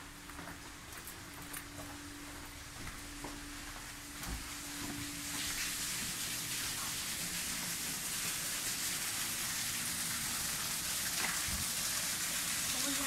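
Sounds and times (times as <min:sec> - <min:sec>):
running splashing water: 0:05.2 - 0:13.0.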